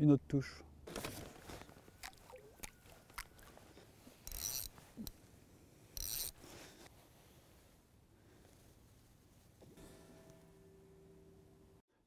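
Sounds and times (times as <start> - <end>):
fishing reel ratcheting buzz: 4.2 - 4.7, 6.0 - 6.4
light clicks handling rod: 4.2 - 5.2, 6.0 - 6.4.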